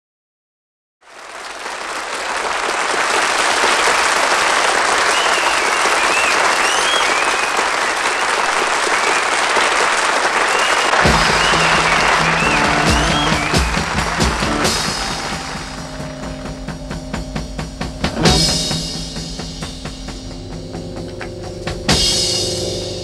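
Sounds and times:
audience applauding: 1.0 - 16.8
whistles: 4.9 - 15.8
band playing low held notes: 10.9 - 23.0.

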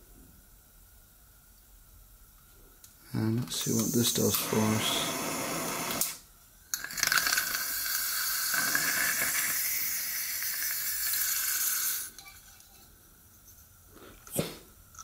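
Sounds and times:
burning hiss and sizzle: 3.0 - 12.8.

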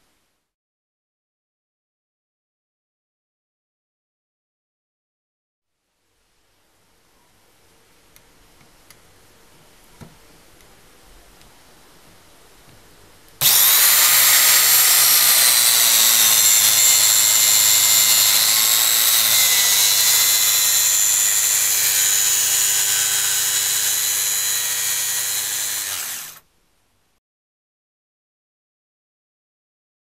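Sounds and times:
power tool motor whining: 13.4 - 26.4.

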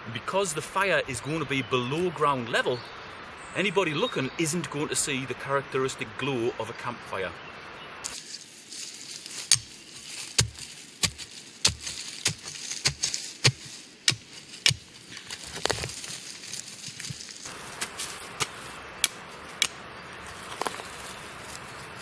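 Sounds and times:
shovel stabbing into soil: 9.2 - 21.0.

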